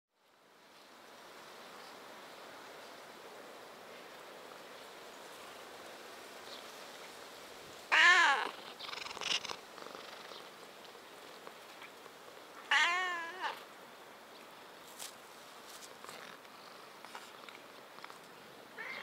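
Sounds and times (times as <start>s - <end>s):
cat meowing: 7.9s - 8.6s, 12.7s - 13.6s, 18.8s - 19.0s.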